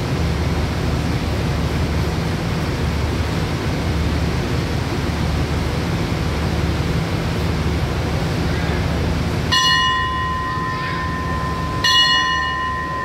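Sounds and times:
steady low rumble: 0.0 - 13.0
bell ringing: 9.5 - 13.0.

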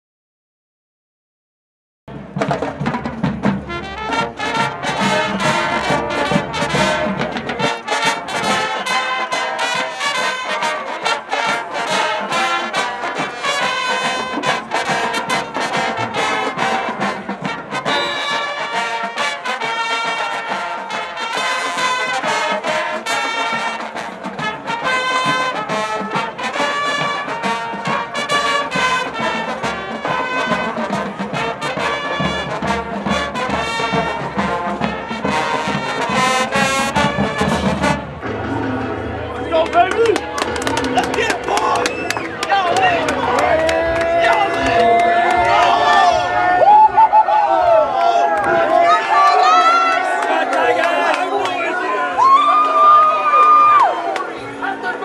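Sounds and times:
snare and bass drums beat: 2.1 - 10.7, 11.4 - 38.1
marching band brass tune: 2.1 - 55.0.

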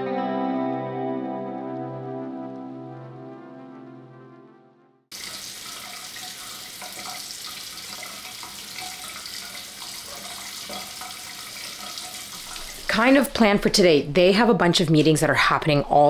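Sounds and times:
background music: 0.0 - 5.1
water running from a tap: 5.1 - 13.4.

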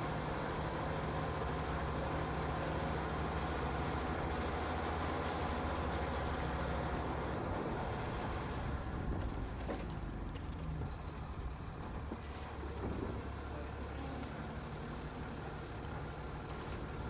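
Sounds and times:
road noise: 0.0 - 17.0
truck engine low drone: 0.0 - 17.0.

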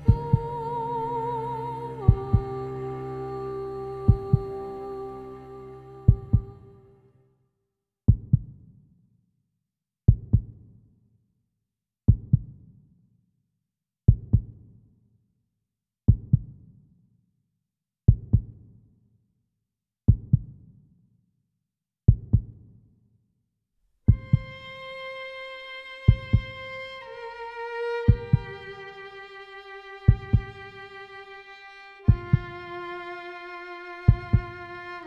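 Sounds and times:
slow heartbeat thumps: 0.0 - 0.6, 2.1 - 2.5, 4.1 - 4.5, 6.1 - 6.7, 24.1 - 24.9, 26.0 - 26.9, 28.0 - 32.9, 34.1 - 35.0.

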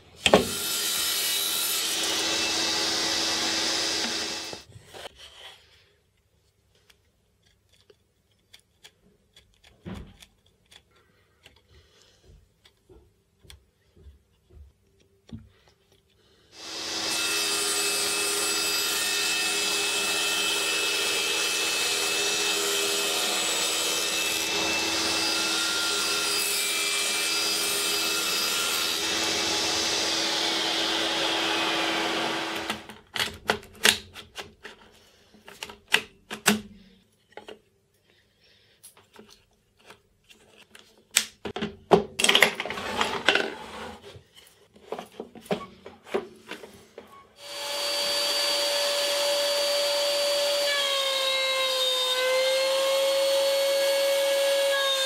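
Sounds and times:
table saw running: 0.3 - 4.7, 16.6 - 32.9, 47.4 - 55.0
saw blade whine: 0.4 - 4.7, 16.6 - 32.9, 47.4 - 55.0
faint taps and handling: 9.5 - 16.2.

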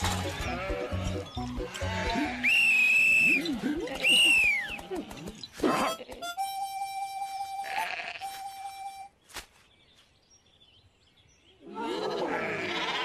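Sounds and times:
cartoon sheep voices bleating: 1.8 - 2.4, 7.6 - 8.6, 11.6 - 13.0.

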